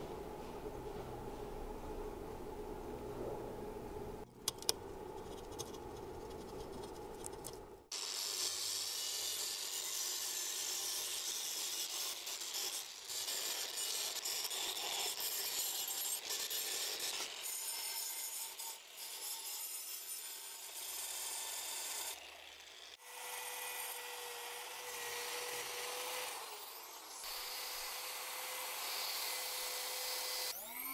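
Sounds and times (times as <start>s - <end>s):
wire brush grinder scrubbing metal: 7.9s - 21.0s.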